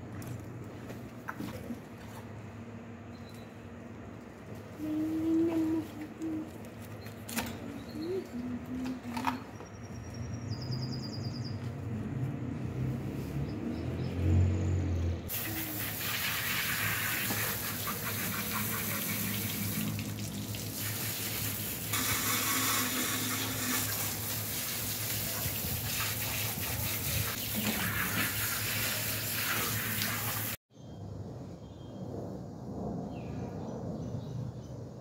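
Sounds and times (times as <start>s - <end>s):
water gushing from hose: 15.3s - 30.6s.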